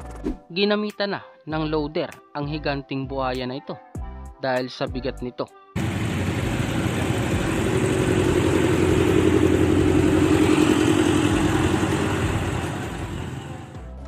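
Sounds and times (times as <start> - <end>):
backhoe diesel engine driving past: 5.8 - 14.0.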